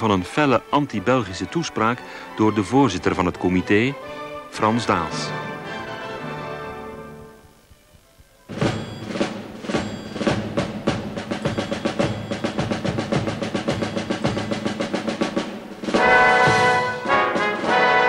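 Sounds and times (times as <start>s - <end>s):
snare drum roll: 8.5s - 18.0s
brass chord: 15.8s - 18.0s.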